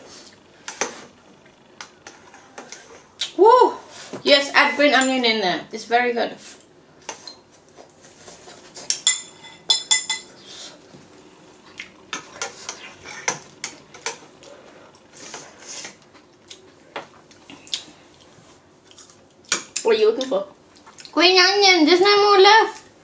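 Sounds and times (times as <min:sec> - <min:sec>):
utensils clinking against bowls: 0:08.9 - 0:10.3.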